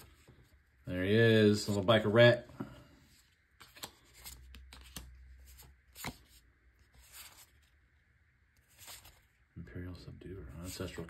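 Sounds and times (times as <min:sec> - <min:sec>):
trading cards rustling: 0:03.0 - 0:07.8, 0:08.6 - 0:09.4.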